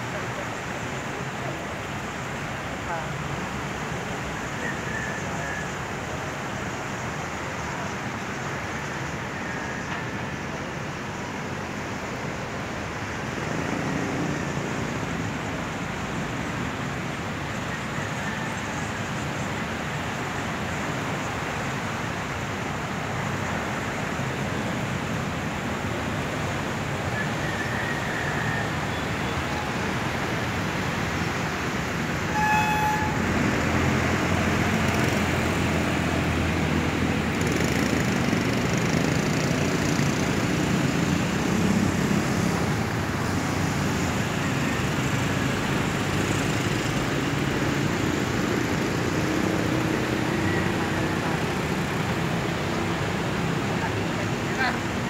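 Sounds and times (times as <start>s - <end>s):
traffic engines and tyres: 0.0s - 55.0s
car horn toot: 32.3s - 33.3s.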